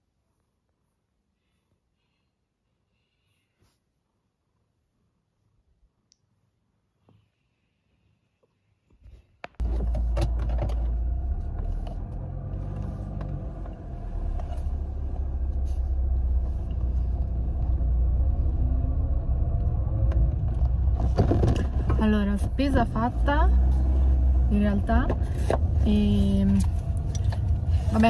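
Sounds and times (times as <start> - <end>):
car engine rumbling: 9.6 - 28.0.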